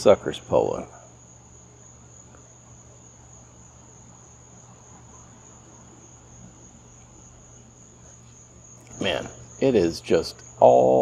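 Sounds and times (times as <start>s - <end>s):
crickets chirping: 0.0s - 11.0s
faint low hum: 0.0s - 11.0s.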